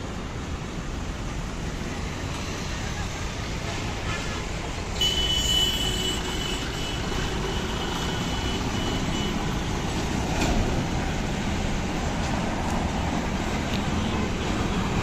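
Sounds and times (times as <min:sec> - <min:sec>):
truck engines rumbling: 0:00.0 - 0:15.0
high-pitched vehicle horn: 0:05.0 - 0:09.4.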